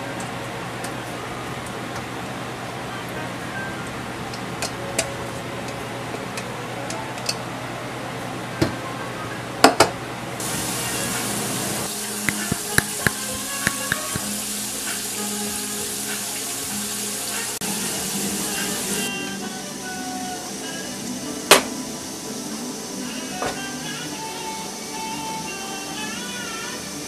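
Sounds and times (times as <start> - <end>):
tap running into metal sink: 12.2 - 14.3
mussels clicking together: 12.3 - 14.2.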